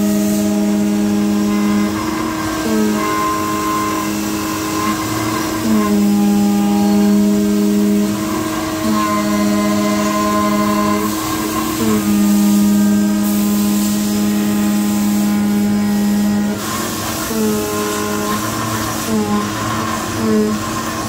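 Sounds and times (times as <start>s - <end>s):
cutting machine whine: 0.0s - 21.0s
steady machine hum: 0.0s - 21.0s.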